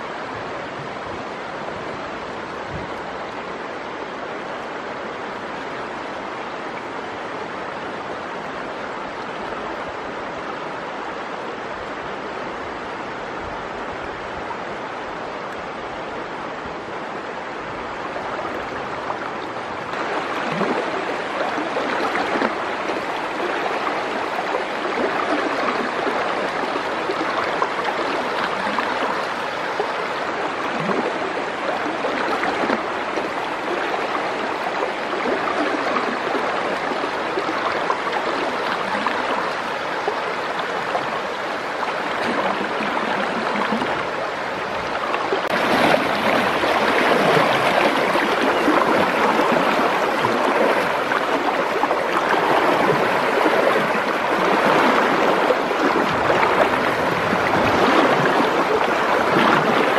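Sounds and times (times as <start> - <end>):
river water rushing over rapids: 0.0 - 59.9
person wading through water: 18.6 - 59.9.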